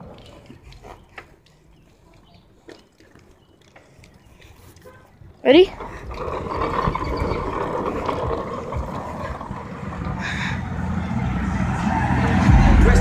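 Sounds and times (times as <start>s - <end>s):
wind buffeting microphone: 3.9s - 13.0s.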